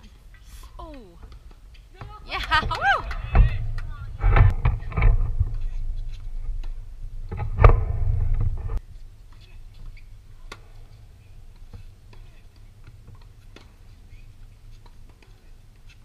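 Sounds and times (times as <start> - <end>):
person speaking: 2.0 - 3.0
low rumble: 2.8 - 8.8.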